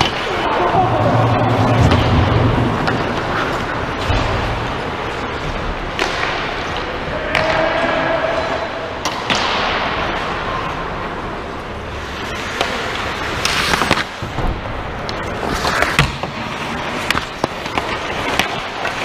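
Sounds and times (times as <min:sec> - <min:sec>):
hockey sticks and puck clacking: 0:00.0 - 0:19.0
skate blades scraping ice: 0:01.6 - 0:07.0, 0:11.9 - 0:14.4, 0:15.1 - 0:19.0.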